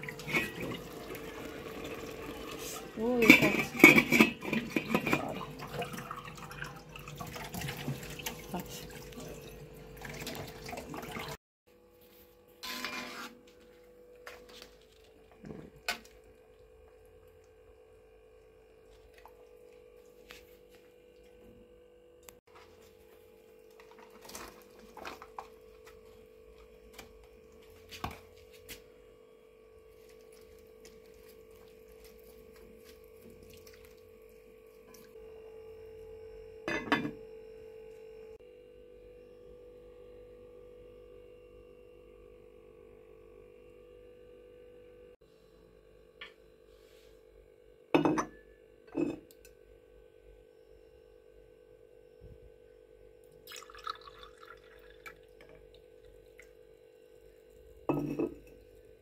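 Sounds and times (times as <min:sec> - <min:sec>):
metal pots and lids clanking: 0:00.1 - 0:00.8, 0:03.1 - 0:05.5.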